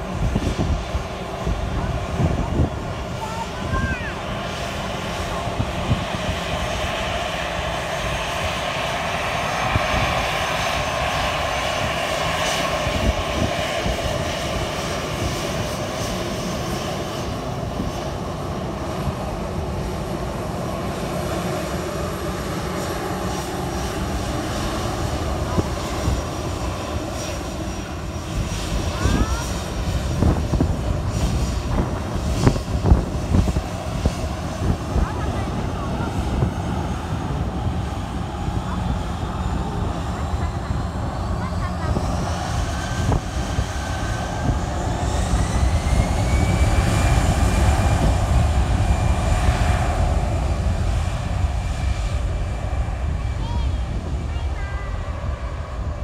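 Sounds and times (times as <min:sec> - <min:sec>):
jet engines whining: 0:00.0 - 0:56.0
wind buffeting microphone: 0:00.0 - 0:56.0.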